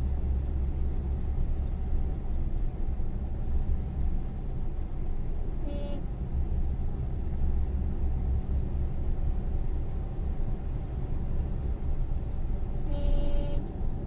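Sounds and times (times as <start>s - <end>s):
road and engine rumble in car: 0.0s - 14.0s
car horn toot: 5.6s - 6.0s, 12.8s - 13.7s.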